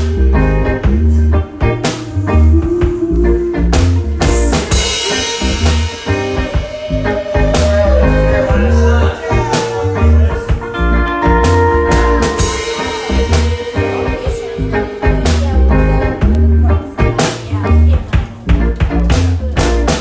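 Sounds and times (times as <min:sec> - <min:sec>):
blues electric guitar: 0:00.0 - 0:20.0.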